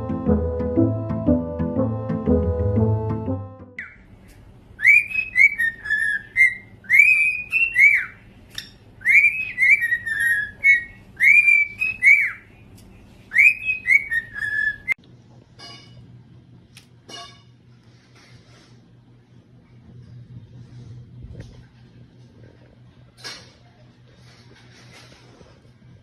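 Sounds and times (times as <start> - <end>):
cockatiel whistling: 4.8 - 12.5, 13.3 - 15.0.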